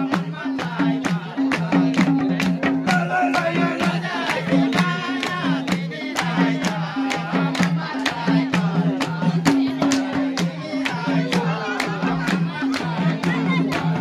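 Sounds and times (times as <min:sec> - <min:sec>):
person singing: 0:00.0 - 0:08.2
drum beating quickly: 0:00.0 - 0:14.0.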